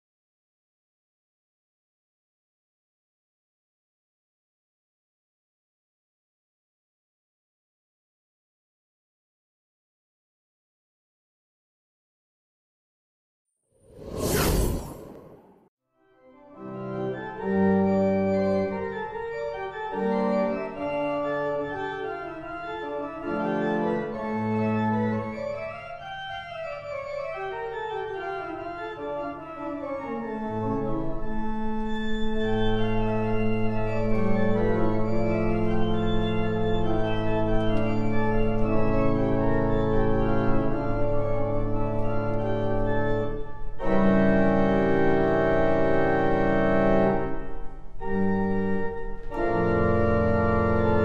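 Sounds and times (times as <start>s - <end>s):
pipe organ chords: 16.6s - 51.0s.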